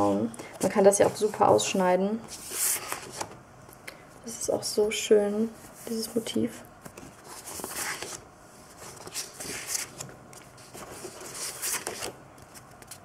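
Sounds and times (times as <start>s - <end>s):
paper sheets rustling: 0.5s - 3.3s, 6.8s - 13.0s.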